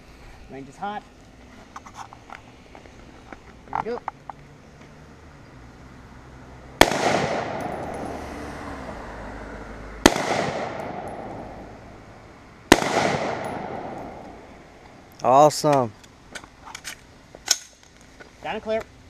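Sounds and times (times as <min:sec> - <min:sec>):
rifle shots with echo: 0:06.8 - 0:08.2, 0:10.0 - 0:11.8, 0:12.7 - 0:14.5.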